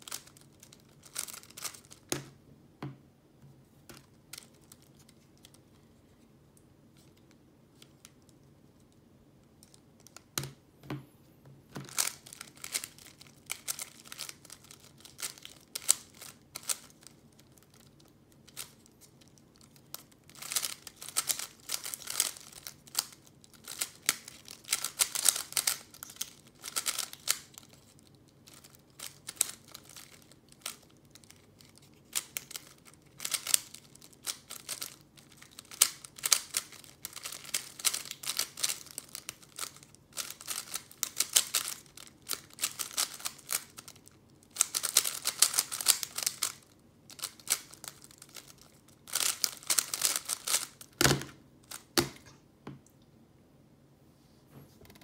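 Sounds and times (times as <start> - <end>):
plastic puzzle cube clicking turns: 11.9 - 51.0.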